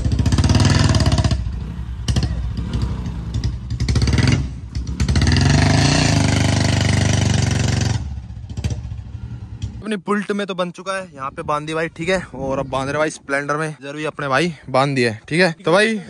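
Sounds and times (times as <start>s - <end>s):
motorcycle engine revving: 0.0s - 9.8s.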